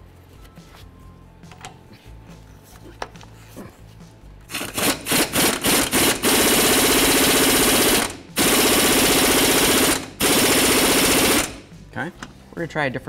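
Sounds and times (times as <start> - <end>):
impact wrench hammering: 4.5 - 11.7.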